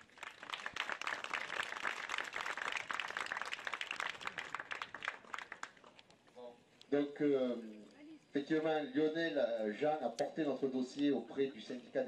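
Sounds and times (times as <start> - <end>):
crowd applauding: 0.0 - 5.9.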